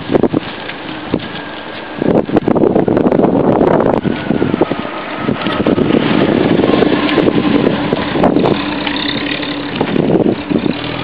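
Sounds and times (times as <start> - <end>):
car driving past: 4.0 - 11.0.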